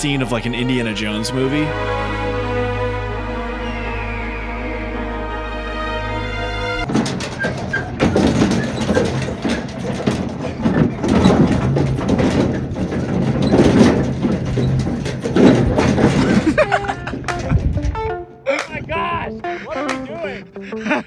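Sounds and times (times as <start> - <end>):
vehicle rattling and jolting: 6.8 - 18.2.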